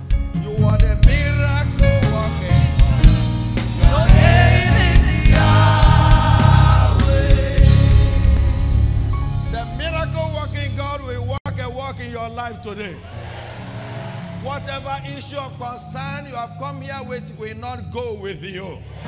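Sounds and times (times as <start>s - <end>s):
drum kit: 0.0s - 11.1s
heavy bass: 0.0s - 11.5s
gospel worship music: 0.0s - 19.0s
singing: 3.8s - 8.5s.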